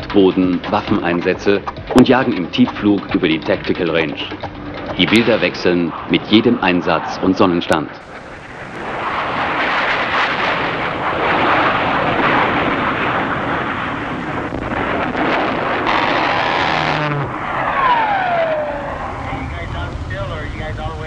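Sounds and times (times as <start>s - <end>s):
jet engine rushing: 0.0s - 21.0s
jet whine falling in pitch: 8.0s - 21.0s.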